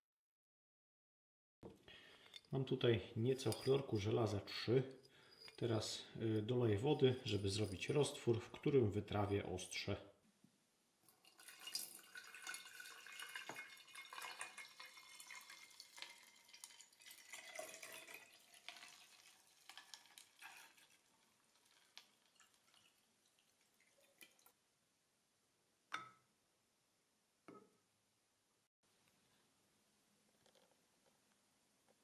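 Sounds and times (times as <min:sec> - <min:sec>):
water pouring into glass jar: 0:03.2 - 0:04.4, 0:06.7 - 0:08.7, 0:11.1 - 0:24.6.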